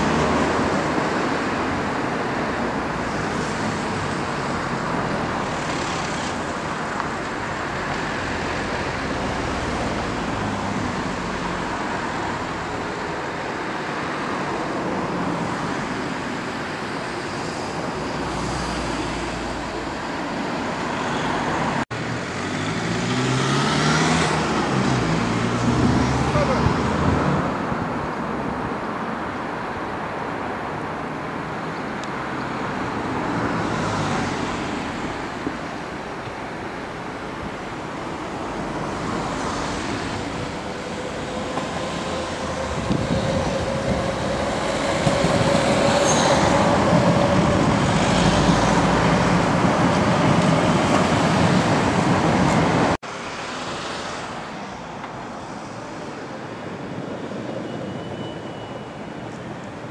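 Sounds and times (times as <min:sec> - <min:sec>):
train running rumble: 0:40.0 - 0:52.9
faint train whine: 0:40.1 - 0:51.2.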